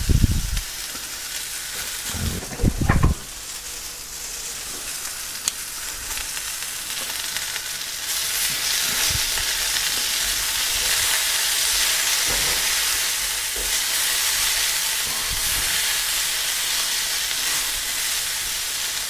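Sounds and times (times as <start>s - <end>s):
vegetables sizzling in a pan: 3.9s - 19.0s.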